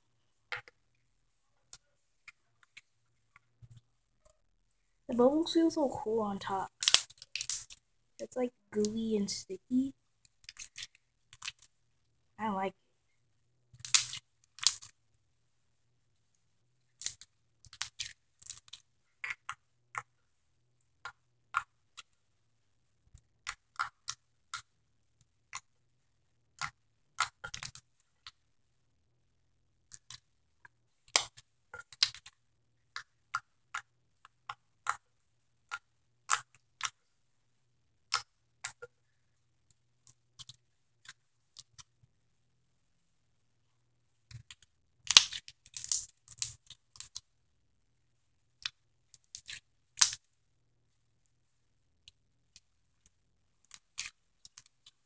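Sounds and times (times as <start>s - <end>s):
slime squishing: 6.7s - 7.8s, 9.7s - 11.7s, 13.8s - 15.0s, 16.9s - 20.1s
wet clicks and pops: 6.7s - 7.8s, 10.4s - 11.7s, 13.8s - 15.0s, 17.0s - 20.1s, 29.8s - 35.0s, 35.7s - 37.0s, 38.1s - 38.9s, 44.3s - 47.3s, 48.6s - 50.3s.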